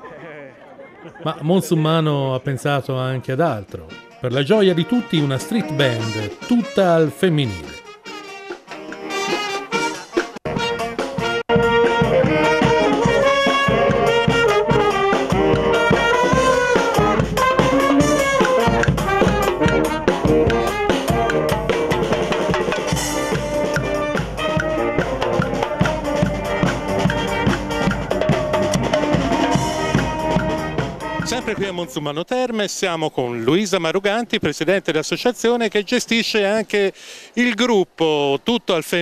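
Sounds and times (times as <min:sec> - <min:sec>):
marching band playing: 0:02.9 - 0:32.0
steady drum beat: 0:03.8 - 0:32.0.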